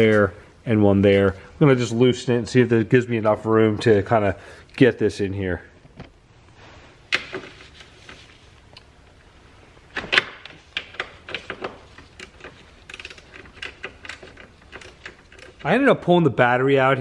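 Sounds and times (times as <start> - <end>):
ratchet wrench clicking: 12.2 - 15.7.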